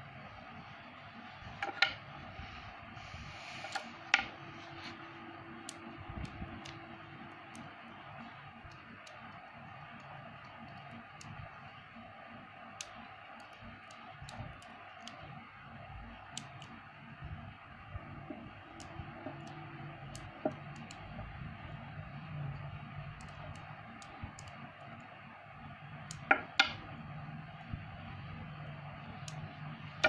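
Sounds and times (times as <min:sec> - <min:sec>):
faint steady hum: 0:00.0 - 0:30.0
magnets clicking together: 0:05.2 - 0:11.7, 0:12.7 - 0:15.4, 0:18.6 - 0:21.2, 0:23.1 - 0:25.1.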